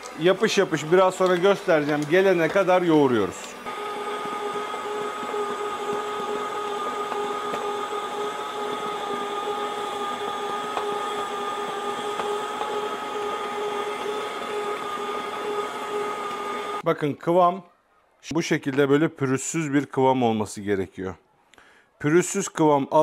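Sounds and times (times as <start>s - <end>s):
stand mixer motor whine: 0.0s - 16.9s.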